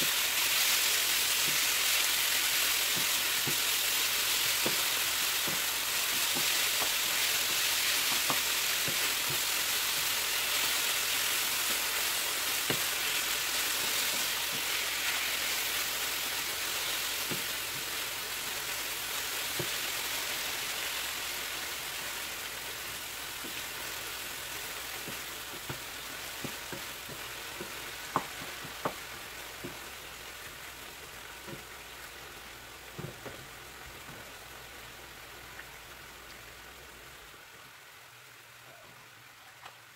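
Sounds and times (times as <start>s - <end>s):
chicken sizzling in a frying pan: 0.0s - 38.8s
spatula tapping pan: 2.9s - 3.7s, 4.4s - 9.5s, 12.6s - 12.9s, 25.0s - 29.9s.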